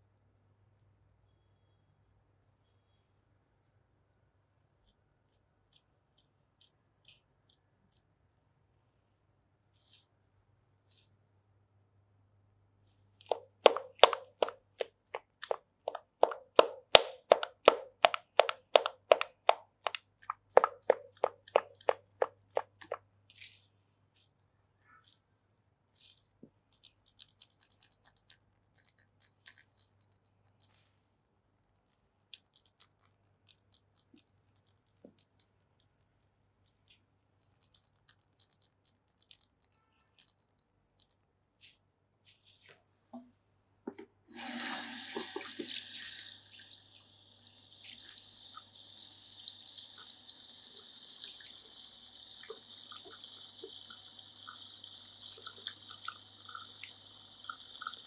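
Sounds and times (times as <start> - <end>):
hands massaging wet face: 13.2 - 24.4, 31.7 - 42.8
shower sprayer water running: 44.3 - 58.0.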